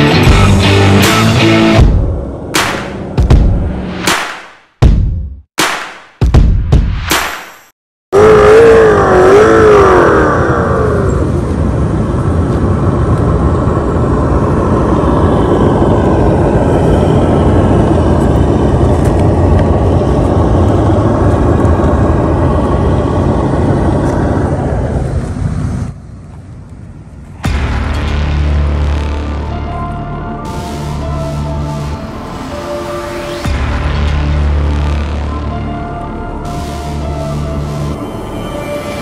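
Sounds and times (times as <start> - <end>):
motor vehicle running: 8.2 - 39.0.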